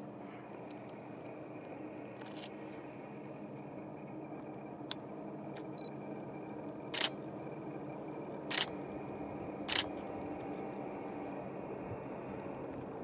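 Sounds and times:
steady background hum: 0:00.0 - 0:13.0
camera shutter clicking: 0:08.5 - 0:08.7, 0:09.7 - 0:09.9.

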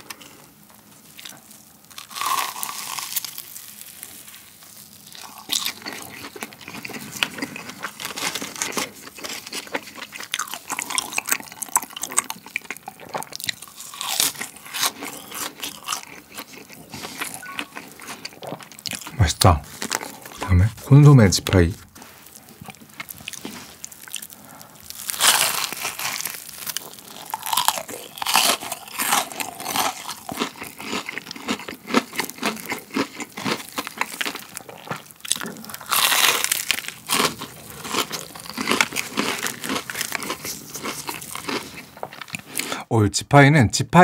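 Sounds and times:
chewing: 0:00.0 - 0:20.5, 0:22.0 - 0:42.8
crunching bites: 0:01.9 - 0:03.8, 0:05.1 - 0:20.5, 0:22.5 - 0:42.7.

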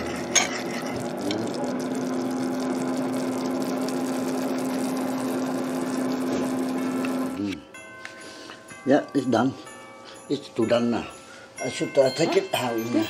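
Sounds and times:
gravy bubbling and sizzling: 0:00.0 - 0:07.6.

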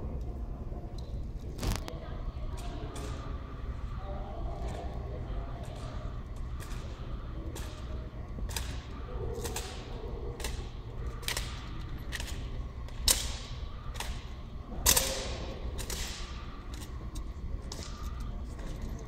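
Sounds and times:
low steady hum: 0:00.0 - 0:19.0
rifles slapped with sharp clacks: 0:05.6 - 0:18.8.

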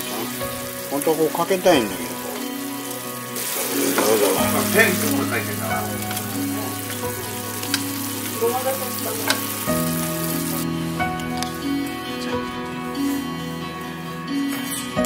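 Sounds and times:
sauce bubbling and sizzling in pan: 0:00.0 - 0:12.0
soft background music: 0:00.0 - 0:15.0.

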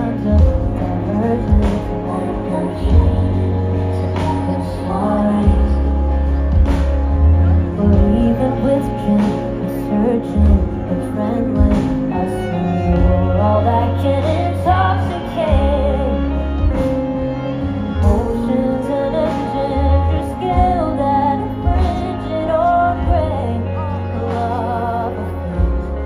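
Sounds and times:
live band through pa: 0:00.0 - 0:26.0.

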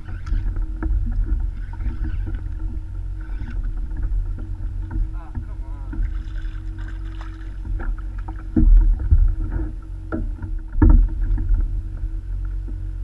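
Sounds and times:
steady low rumble: 0:00.0 - 0:13.0
thumps on a plastic kayak: 0:07.8 - 0:11.5.

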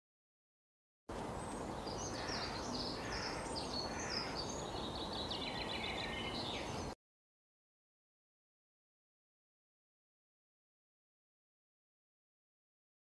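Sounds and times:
outdoor background hiss: 0:01.1 - 0:07.0
songbird singing: 0:01.1 - 0:07.0.

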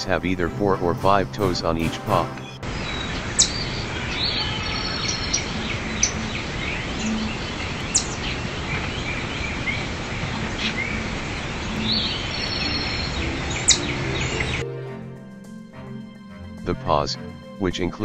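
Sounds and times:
steady outdoor hiss: 0:00.0 - 0:18.0
small birds chirping: 0:02.2 - 0:14.7.

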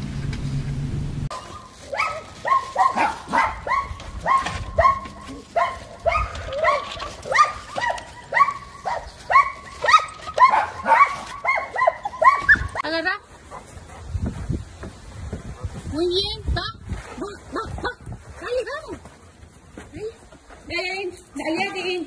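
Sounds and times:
dog barking rapidly: 0:01.3 - 0:12.9.

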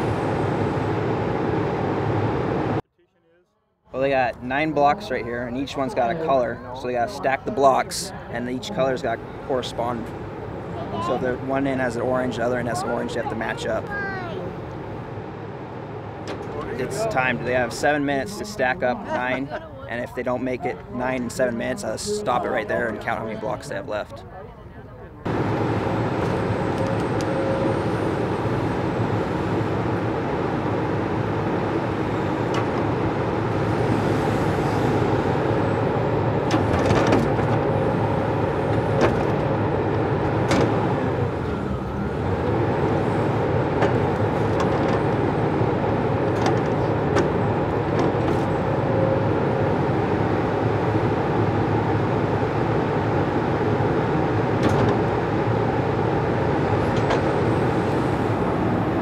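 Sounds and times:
log loader diesel engine: 0:25.2 - 0:59.0.

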